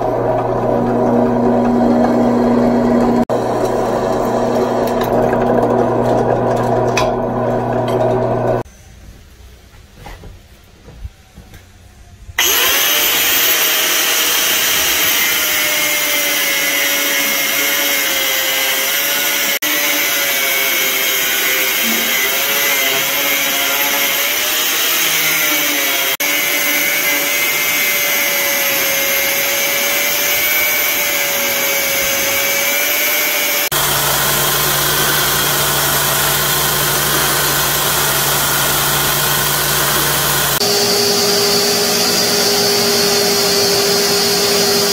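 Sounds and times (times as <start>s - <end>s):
angle grinder cutting steel: 12.4s - 44.9s
belt sander grinding steel: 12.4s - 44.9s.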